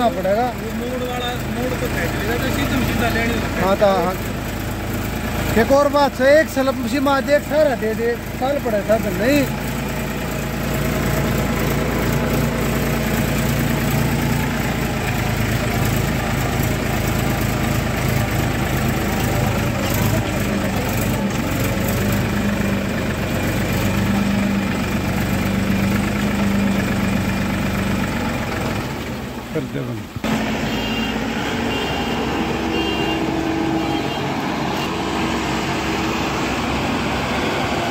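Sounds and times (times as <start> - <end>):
combine harvester running: 0.0 - 37.9
diesel engine humming: 0.0 - 37.9.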